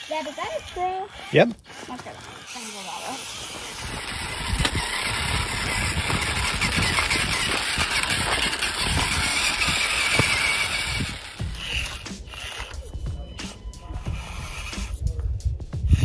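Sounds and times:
electric motor and gearbox whining: 0.0s - 16.0s
low bumps: 3.3s - 16.0s.

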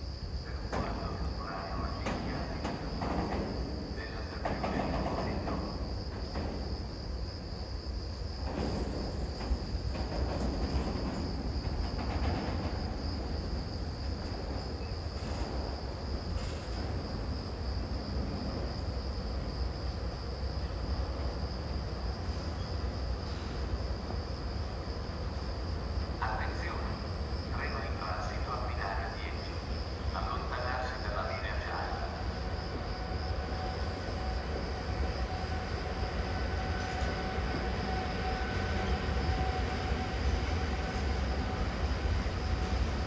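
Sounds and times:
crickets trilling: 0.0s - 43.0s.

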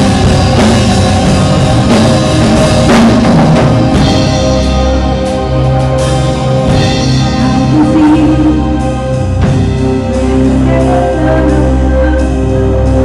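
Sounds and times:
drum hits: 0.0s - 5.0s
sustained low notes: 0.0s - 13.0s.

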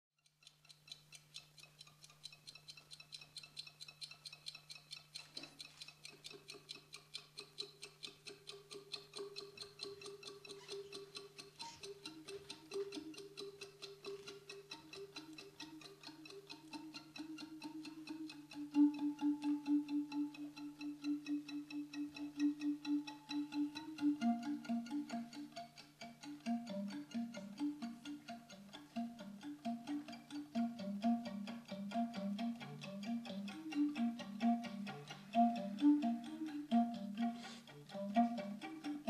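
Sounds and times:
clock ticking: 0.2s - 39.0s
low held music notes: 9.2s - 39.0s.

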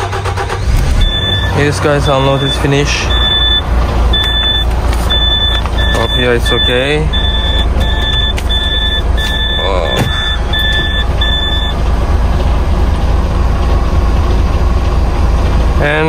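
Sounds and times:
truck diesel engine rumbling: 0.0s - 16.0s
reversing alarm beeping: 0.9s - 11.8s.

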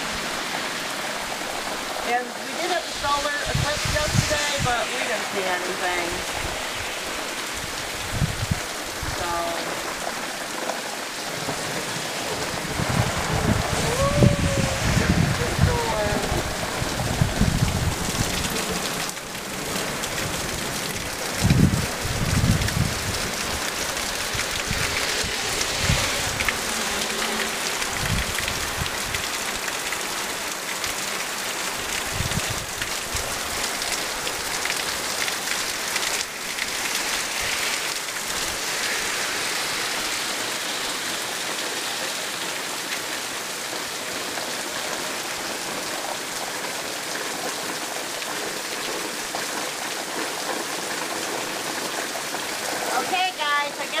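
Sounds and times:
heavy rain falling: 0.0s - 54.0s
water pouring off roof: 0.0s - 54.0s
low rumbles: 12.4s - 29.3s.

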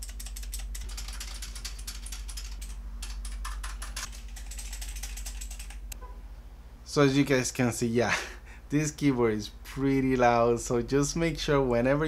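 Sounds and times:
mechanical keyboard typing: 0.0s - 5.8s.

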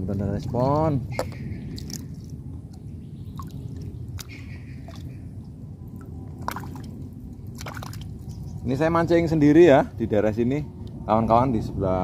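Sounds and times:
water sloshing softly: 0.0s - 8.8s
steady low rumble: 0.0s - 12.0s.

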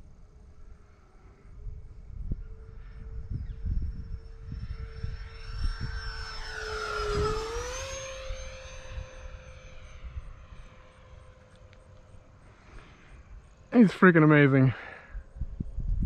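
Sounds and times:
model jet fans whining: 0.0s - 16.0s
wind buffeting microphone: 1.4s - 11.4s, 15.1s - 16.0s.

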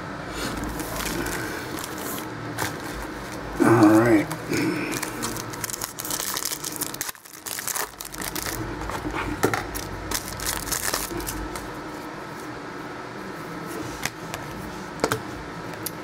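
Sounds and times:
foil wrapper crinkling: 0.5s - 3.5s, 4.2s - 11.7s.

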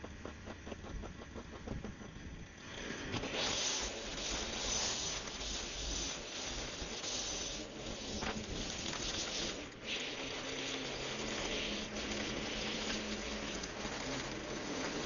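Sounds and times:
faint engine hum: 0.0s - 3.4s
string trimmer line hissing: 2.6s - 15.0s.

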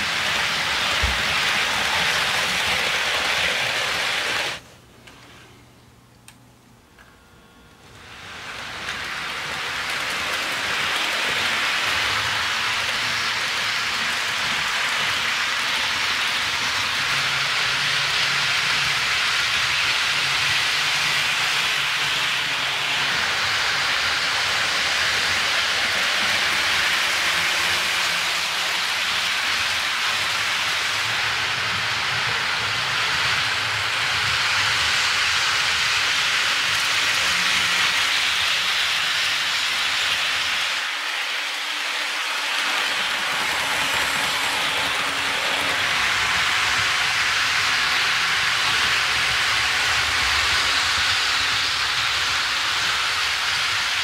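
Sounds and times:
model train wheels rolling on rails: 0.0s - 5.4s, 7.8s - 54.0s.

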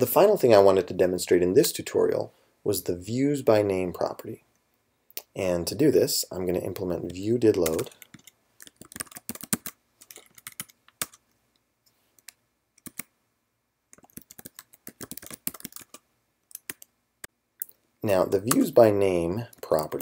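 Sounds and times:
typing on computer keyboard: 7.6s - 11.2s, 12.2s - 13.1s, 13.9s - 16.9s.

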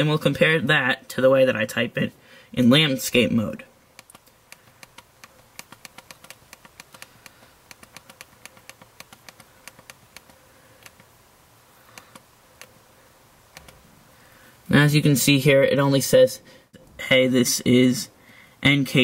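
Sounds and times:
touchscreen clicking while typing: 3.9s - 11.1s, 11.9s - 12.7s, 13.5s - 13.8s.

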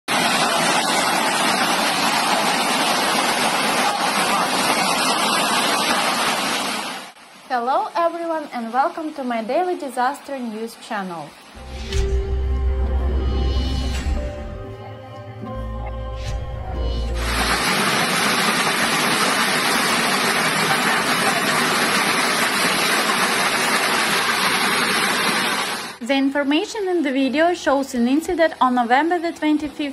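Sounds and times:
floodwater rushing: 0.1s - 11.7s, 17.1s - 26.0s.

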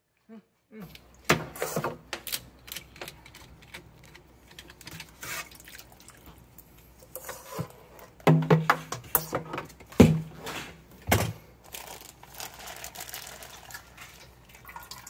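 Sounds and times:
water splashing and dripping: 13.3s - 15.0s.

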